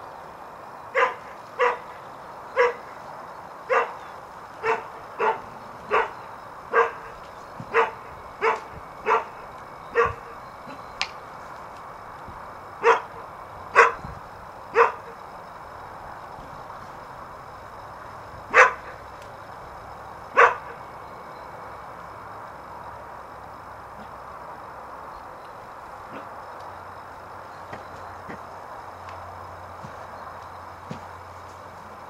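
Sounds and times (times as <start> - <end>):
dog barking: 1.0 - 2.0, 2.6 - 2.9, 3.7 - 10.8, 12.8 - 14.1, 14.7 - 15.2, 18.5 - 19.0, 20.3 - 20.8.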